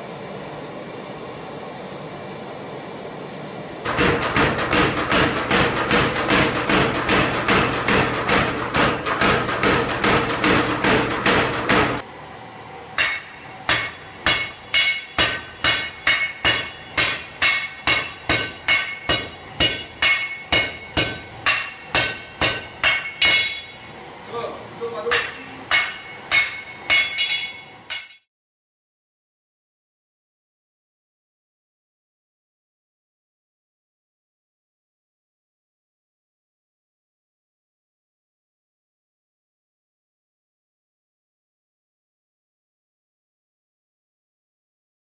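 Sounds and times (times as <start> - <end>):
hammers ringing on anvil: 3.9 - 12.0, 13.0 - 23.9, 24.9 - 28.3.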